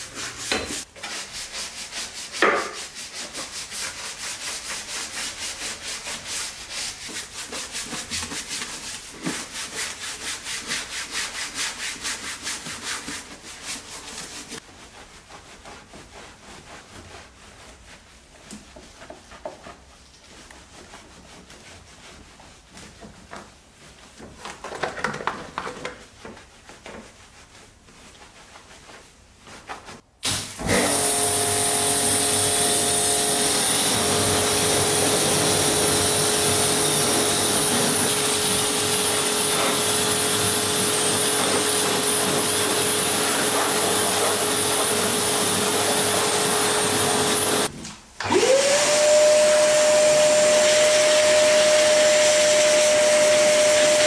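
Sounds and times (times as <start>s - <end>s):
brush scrubbing wet surface: 0.0s - 24.6s, 25.4s - 30.1s, 30.8s - 47.7s.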